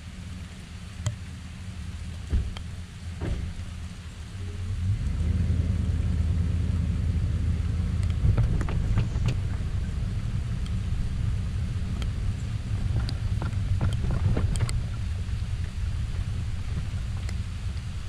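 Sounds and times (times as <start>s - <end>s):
pickup truck engine rumbling: 0.0s - 18.0s
light ticks: 0.9s - 1.3s, 2.1s - 2.8s, 7.9s - 18.0s.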